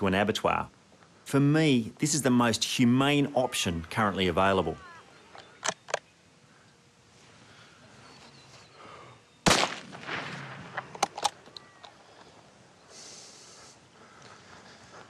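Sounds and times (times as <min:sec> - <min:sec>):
sharp clicks: 0:05.4 - 0:06.1
rifle shot with echo: 0:09.4 - 0:11.2.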